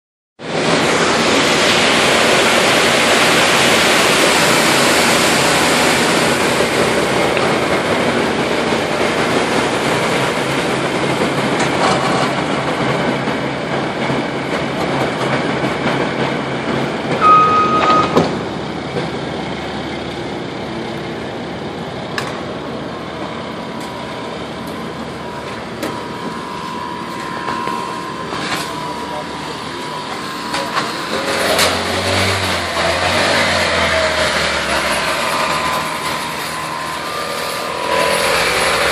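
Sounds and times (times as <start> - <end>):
heavy truck engine running: 0.4 - 38.9
short high beep: 17.2 - 18.3, 25.8 - 31.2.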